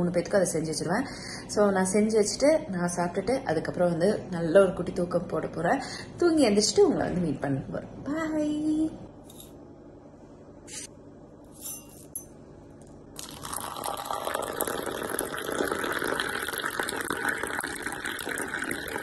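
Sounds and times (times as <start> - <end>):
coffee pouring into steel tumbler: 13.2 - 19.0.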